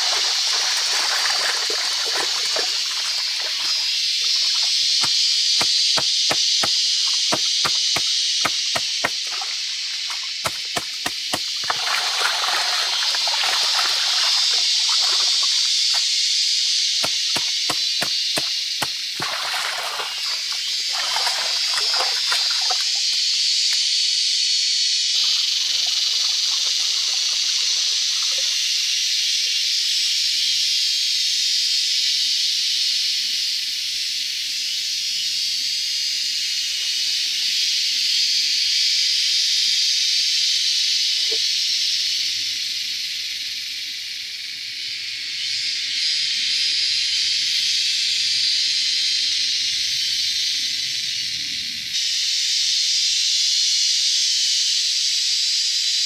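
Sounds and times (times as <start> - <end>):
stream water splashing: 0.0 - 16.2, 17.0 - 23.3, 25.2 - 28.8.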